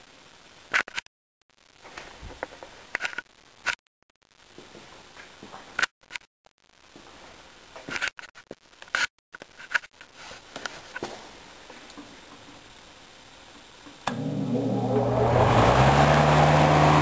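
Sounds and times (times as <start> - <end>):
handheld camera scrapes and knocks: 7.8 - 11.1
box fan rushing air: 14.1 - 17.0.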